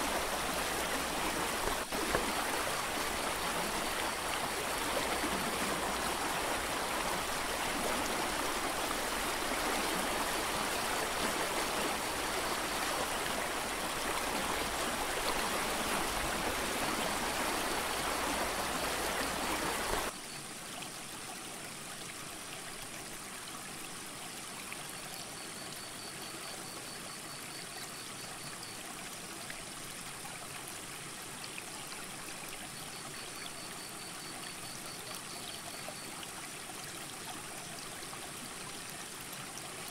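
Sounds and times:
creek water rushing: 0:00.0 - 0:24.8.

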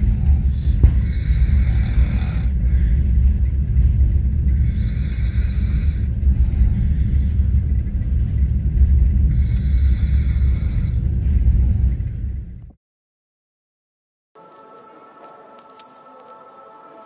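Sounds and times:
moving train rumble: 0:00.0 - 0:12.8.

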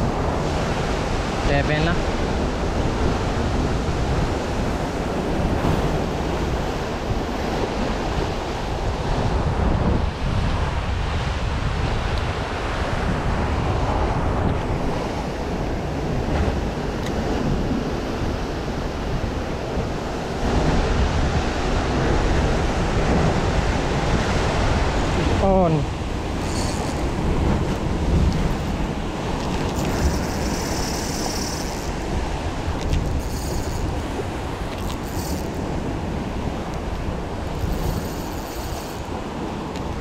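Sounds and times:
surf breaking on rocky shore: 0:00.0 - 0:40.0
wind buffeting microphone: 0:00.0 - 0:40.0.

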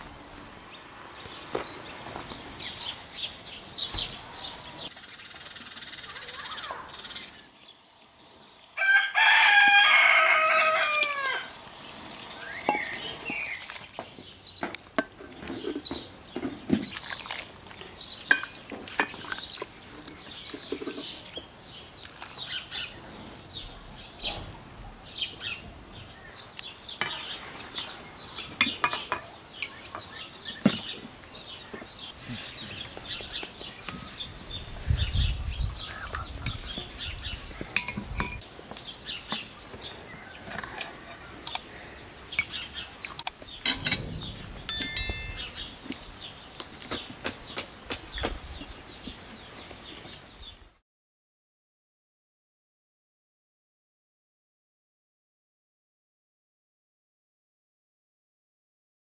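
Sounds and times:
rooster crowing: 0:08.8 - 0:11.6.

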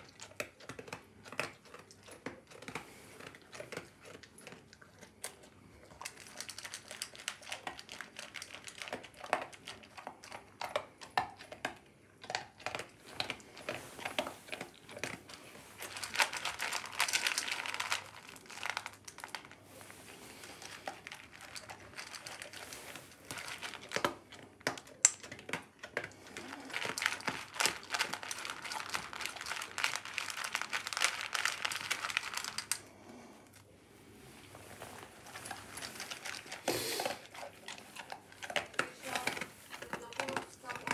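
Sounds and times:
dog crunching kibble: 0:00.0 - 0:40.9
kibble clattering in metal bowl: 0:15.8 - 0:19.5, 0:20.6 - 0:25.7, 0:26.4 - 0:32.8, 0:38.4 - 0:40.9.

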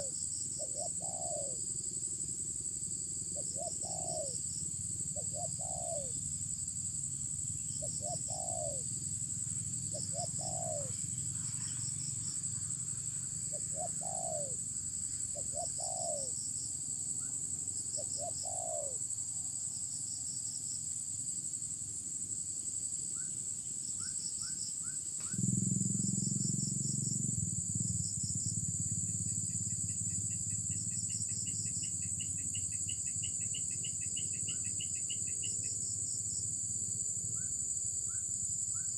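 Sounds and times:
doves cooing: 0:00.0 - 0:01.6, 0:03.3 - 0:04.4, 0:05.1 - 0:06.2, 0:07.8 - 0:08.9, 0:09.9 - 0:12.7, 0:13.5 - 0:14.7, 0:15.3 - 0:16.4, 0:18.0 - 0:19.0
insects whining and chirping: 0:00.0 - 0:38.9.

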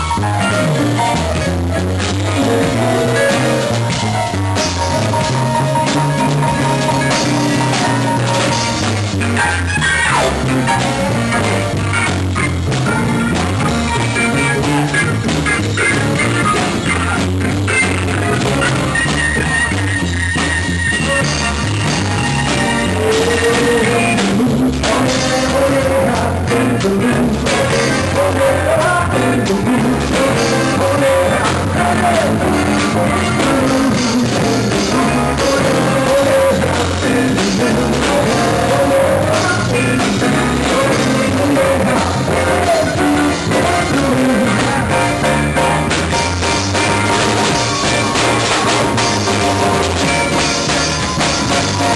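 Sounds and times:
live dance band playing: 0:00.0 - 0:51.9
person singing: 0:22.6 - 0:51.9.

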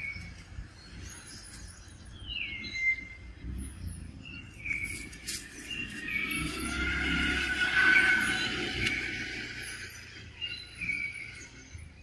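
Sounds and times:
high bird chirps: 0:00.0 - 0:12.0
low steady rumble: 0:00.0 - 0:12.0
bird whistling descending notes: 0:05.6 - 0:11.6.

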